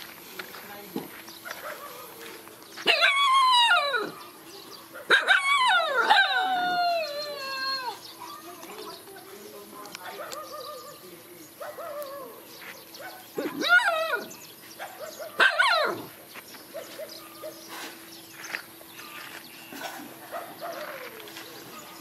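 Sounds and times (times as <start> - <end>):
dogs howling: 1.5 - 8.1, 10.1 - 17.6, 20.2 - 22.0.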